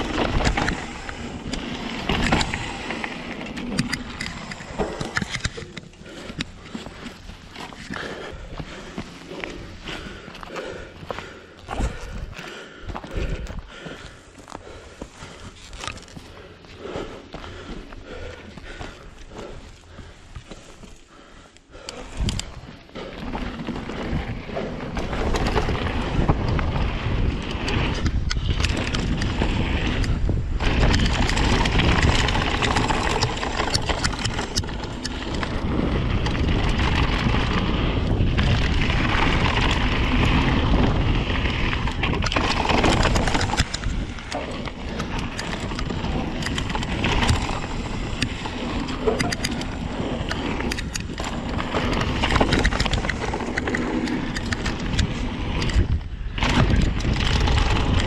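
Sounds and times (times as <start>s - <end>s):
bike clacking and rattling: 0.0s - 58.0s
bike tyre noise: 0.0s - 58.0s
wind on microphone: 24.0s - 58.0s.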